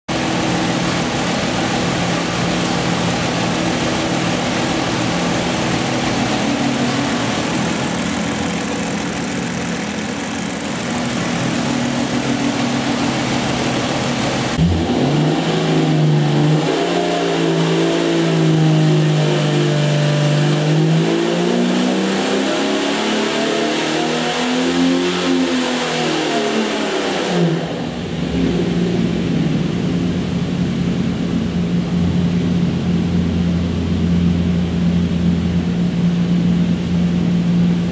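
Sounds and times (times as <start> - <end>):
engine running on a dyno: 0.1 - 37.9.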